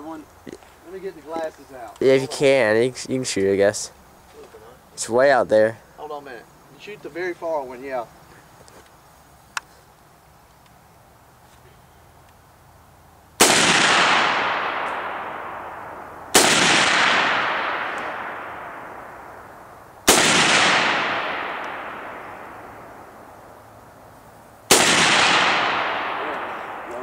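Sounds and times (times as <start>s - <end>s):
rifle shots with echo: 13.4s - 23.4s, 24.7s - 27.0s.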